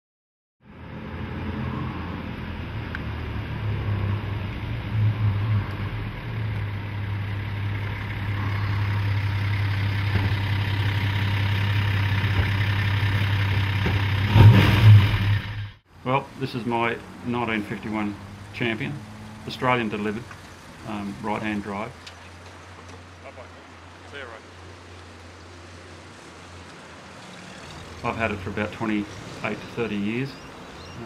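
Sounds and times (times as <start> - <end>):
car engine idling: 4.6 - 25.5.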